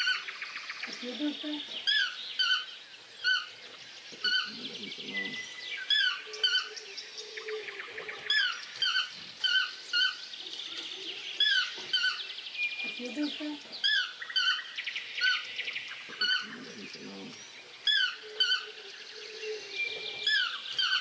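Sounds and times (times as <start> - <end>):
toucan yelping calls: 16.1 - 17.0.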